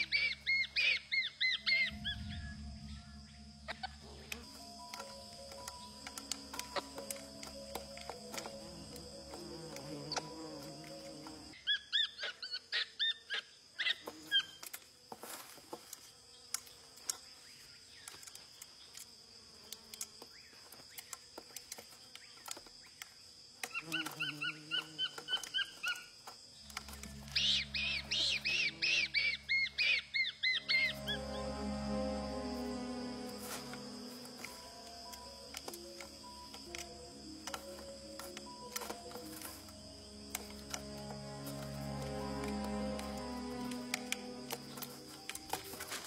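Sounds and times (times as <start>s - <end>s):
soft background music: 1.4s - 11.6s, 26.6s - 46.0s.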